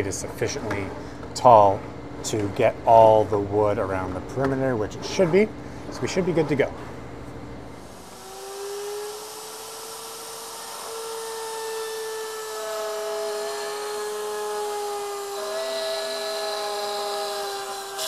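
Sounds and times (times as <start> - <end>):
router whining while cutting wood: 7.8 - 18.0.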